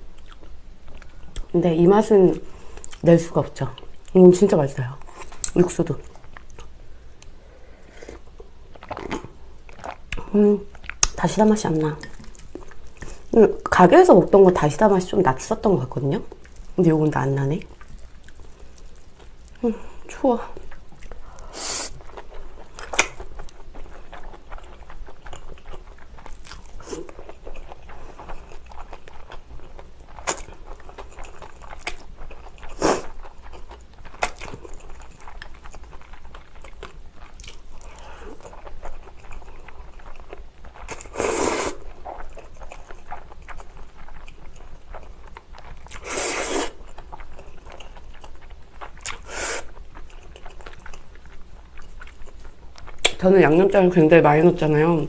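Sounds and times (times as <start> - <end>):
wet chewing and mouth smacks: 0.1 - 1.5, 2.6 - 3.1, 5.0 - 13.3, 17.5 - 19.6, 20.5 - 53.3
slurping noodles: 41.1 - 41.8, 46.0 - 46.8, 49.2 - 49.7.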